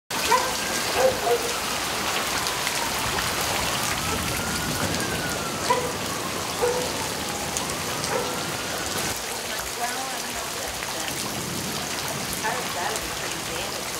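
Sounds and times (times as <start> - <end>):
faint siren wailing: 0.1 - 10.8
heavy rain pouring: 0.1 - 13.9.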